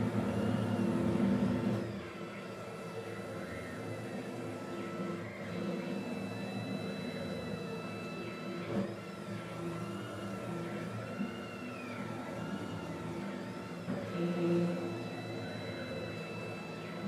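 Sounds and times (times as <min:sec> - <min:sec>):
stepper motors whining: 0:01.8 - 0:17.0.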